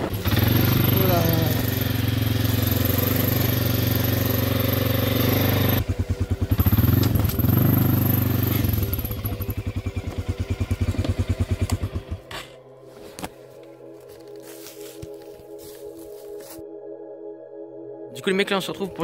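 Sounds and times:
quad bike engine running: 0.0 - 12.4.

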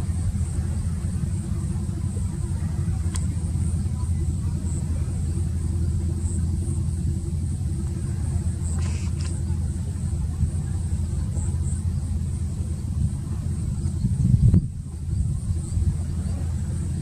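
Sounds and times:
boat engine drone: 0.0 - 17.0
faint clicks: 3.0 - 3.4, 8.7 - 9.5.

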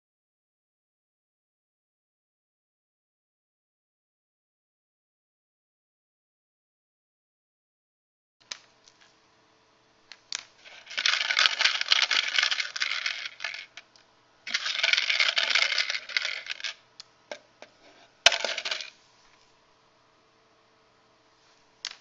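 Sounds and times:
cubes rattling in plastic bin: 10.6 - 13.9, 14.5 - 16.8, 18.3 - 19.0.

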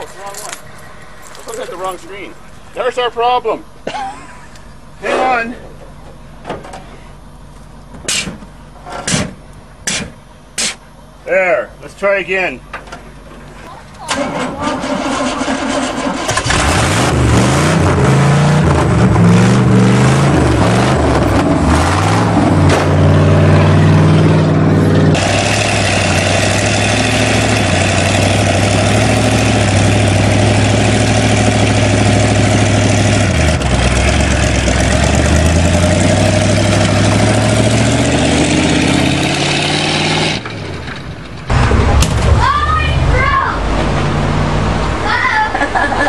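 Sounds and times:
pickup truck engine revving: 14.1 - 46.0.

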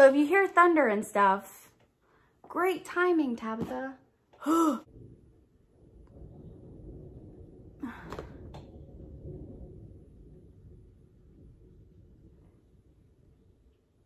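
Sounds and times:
distant thunder rumble: 4.8 - 14.0.

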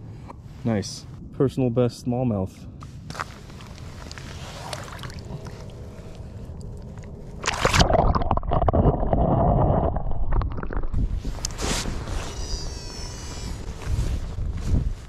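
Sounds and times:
camera splashing into water: 7.4 - 8.9
muffled underwater gurgling: 7.6 - 11.0.

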